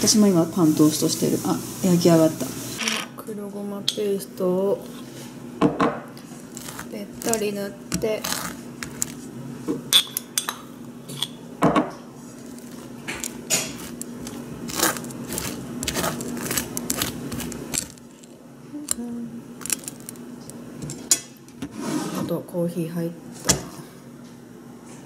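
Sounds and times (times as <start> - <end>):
knife scraping toast: 6.3 - 9.2, 12.4 - 18.3.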